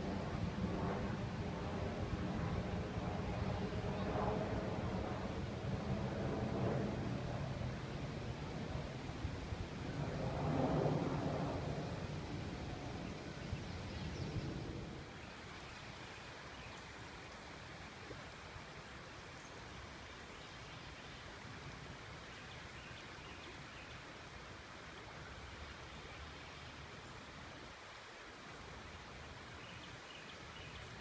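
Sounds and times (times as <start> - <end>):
flowing canal water: 15.0 - 31.0.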